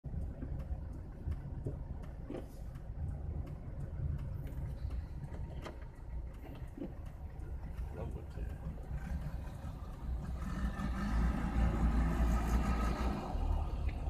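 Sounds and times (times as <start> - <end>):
car road and engine rumble: 0.0 - 14.0
light clicks and knocks: 0.1 - 9.2.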